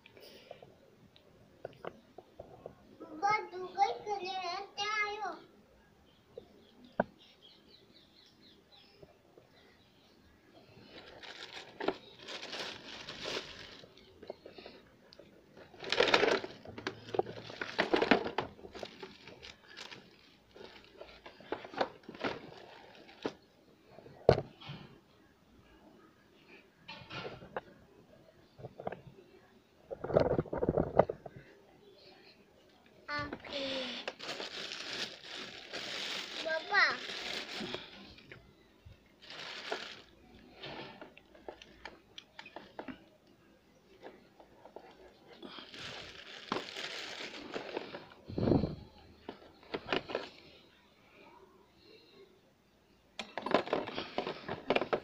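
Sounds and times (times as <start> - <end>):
plastic bag crinkling: 10.7 - 23.5, 33.1 - 38.4, 39.1 - 42.6, 44.7 - 50.5.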